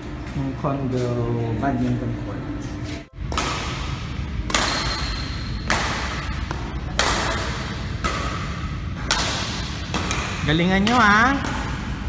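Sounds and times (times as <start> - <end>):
rackets hitting shuttlecock: 3.2 - 12.0.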